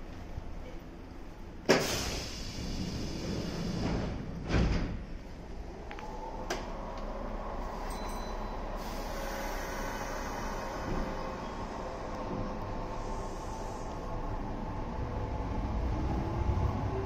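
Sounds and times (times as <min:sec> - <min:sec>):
train electric hum: 0:00.0 - 0:17.0
train doors sliding shut: 0:01.6 - 0:05.2, 0:07.7 - 0:14.3.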